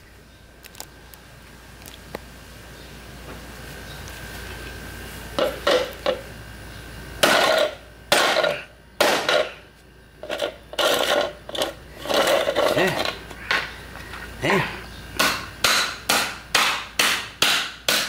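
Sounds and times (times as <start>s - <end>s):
plastic scraping on concrete: 10.2s - 13.4s.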